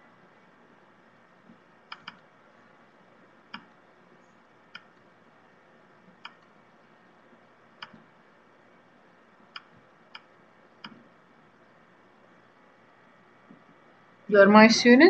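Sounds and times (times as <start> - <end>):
low steady hiss: 0.0 - 15.0.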